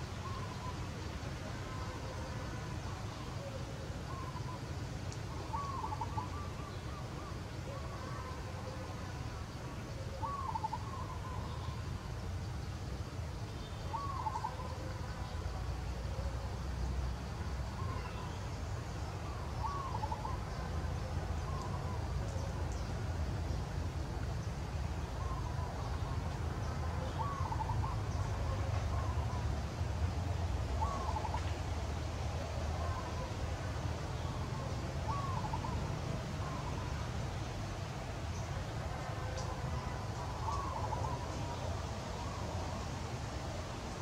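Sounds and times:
bird calling: 0:01.7 - 0:04.6, 0:05.3 - 0:08.8, 0:10.0 - 0:11.8, 0:13.7 - 0:15.0, 0:19.2 - 0:20.7, 0:27.0 - 0:29.4, 0:30.8 - 0:31.5, 0:34.2 - 0:37.1, 0:39.2 - 0:41.6.

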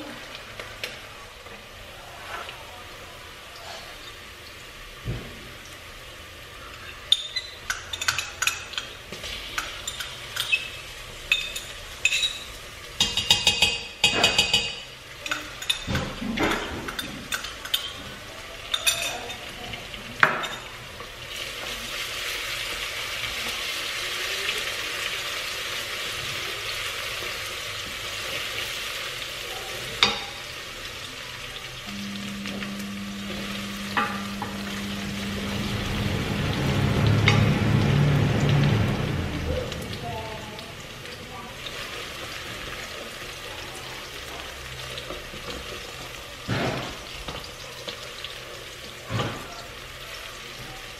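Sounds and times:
onions sizzling in oil: 0:00.0 - 0:50.9
spoon scraping and knocking pot: 0:13.0 - 0:14.9.

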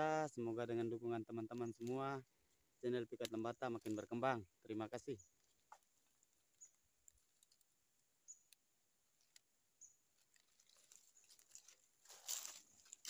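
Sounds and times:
rustle in dry leaves: 0:09.2 - 0:13.0.

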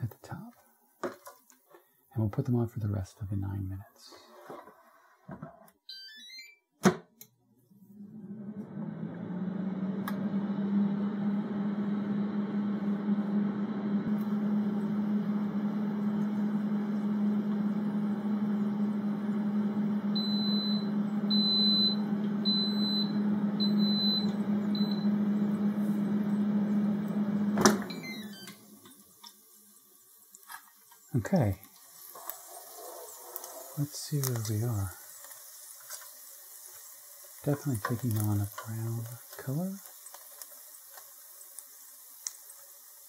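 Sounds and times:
air fryer fan humming: 0:08.0 - 0:30.4, 0:31.0 - 0:43.0
air fryer click: 0:27.1 - 0:28.6, 0:37.9 - 0:38.3.

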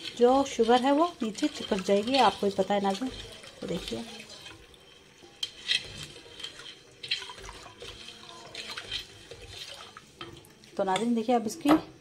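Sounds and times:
liquid swishing in pot: 0:00.0 - 0:10.9
wooden spatula brushing pot: 0:00.0 - 0:11.0.

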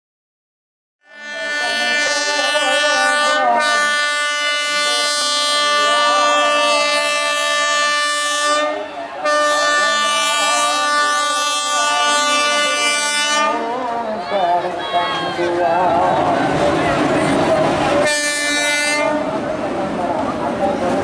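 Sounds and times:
locomotive horn blast: 0:01.0 - 0:13.9, 0:18.0 - 0:19.4
faint crowd voices: 0:01.1 - 0:21.0.

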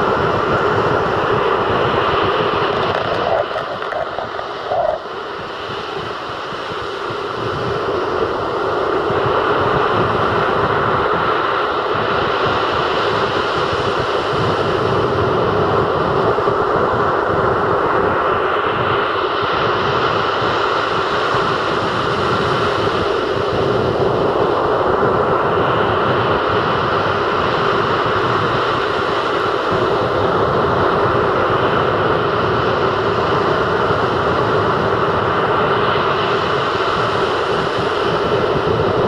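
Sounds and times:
waves breaking on beach: 0:00.0 - 0:07.3, 0:25.6 - 0:39.0.

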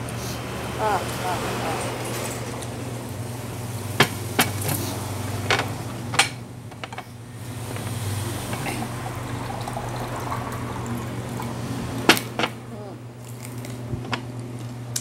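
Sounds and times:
crunching crispy snacks: 0:13.2 - 0:13.9.

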